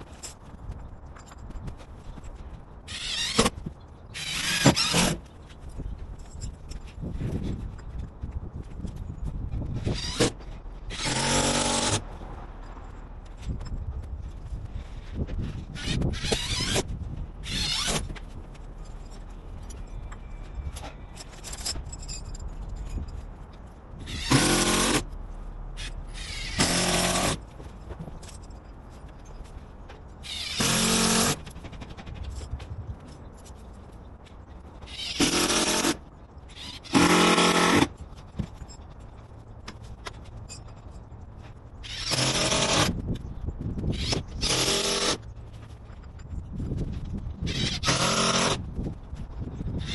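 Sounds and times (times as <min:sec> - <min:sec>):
cordless drill driving screws: 0:02.9 - 0:03.6, 0:04.2 - 0:05.2, 0:09.8 - 0:12.0, 0:24.0 - 0:25.1, 0:25.8 - 0:27.4, 0:30.3 - 0:31.4, 0:34.9 - 0:37.9, 0:41.8 - 0:43.0, 0:43.9 - 0:45.2, 0:47.5 - 0:48.7.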